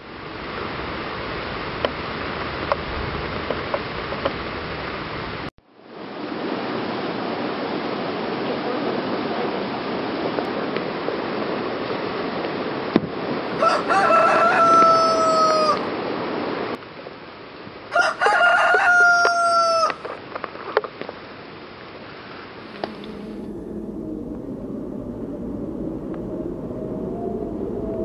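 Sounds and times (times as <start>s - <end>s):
stream rushing: 0.1s - 18.1s, 21.4s - 28.0s
rooster crowing: 13.5s - 15.9s, 17.9s - 20.1s, 22.6s - 28.0s.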